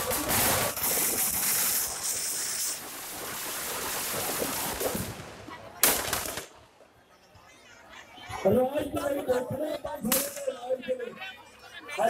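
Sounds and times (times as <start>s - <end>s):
firecrackers crackling and hissing: 0.0s - 6.9s, 10.0s - 10.5s.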